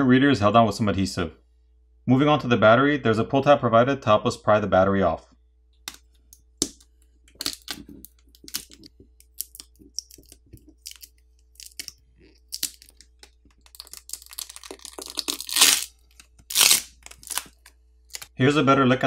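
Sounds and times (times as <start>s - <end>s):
adhesive crackling and clicking: 6.6s - 18.3s
adhesive crackling tear: 7.3s - 18.3s.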